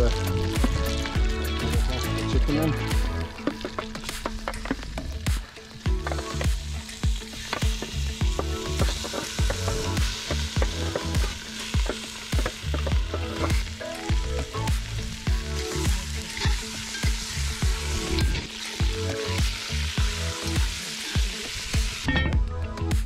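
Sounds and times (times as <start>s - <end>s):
chicken sizzling in oil: 0.0s - 22.1s
background music with steady beat: 0.0s - 23.0s.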